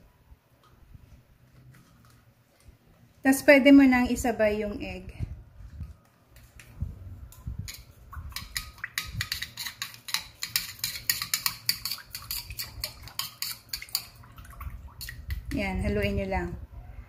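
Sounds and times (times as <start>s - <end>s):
metal utensil clicking against bowl: 7.7s - 14.2s.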